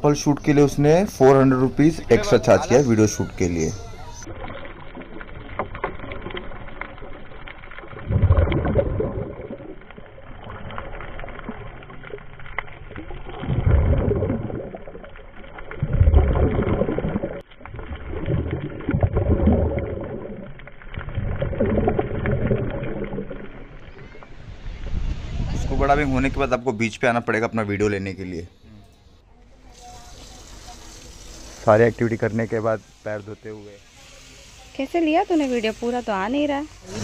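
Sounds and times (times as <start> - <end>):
underwater bubbles gurgling: 0.3 - 24.7.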